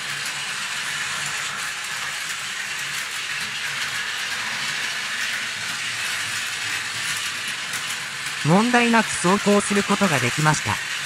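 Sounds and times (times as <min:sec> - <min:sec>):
toy train motor whirring: 0:00.0 - 0:11.0
wheels clicking on rail joints: 0:00.0 - 0:11.0.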